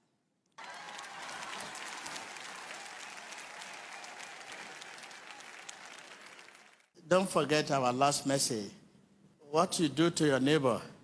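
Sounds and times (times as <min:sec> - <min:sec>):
congregation applauding: 0:00.6 - 0:06.9.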